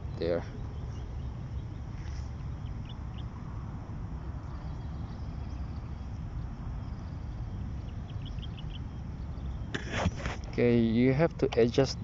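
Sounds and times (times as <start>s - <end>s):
faint bird chirps: 0.0s - 3.5s, 4.3s - 10.3s.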